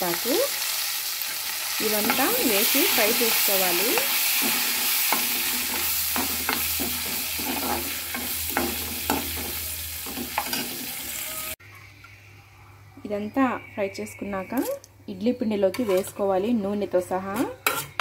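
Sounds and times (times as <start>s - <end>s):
oil sizzling in a metal pan: 0.0s - 11.6s
steel spoon scraping a pan: 1.2s - 11.6s, 15.6s - 16.3s, 17.2s - 18.0s.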